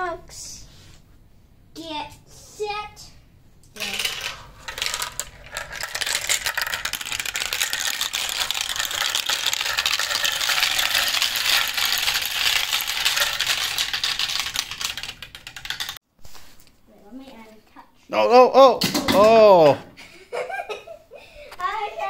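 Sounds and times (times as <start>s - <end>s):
glass marbles clattering: 3.8s - 16.0s.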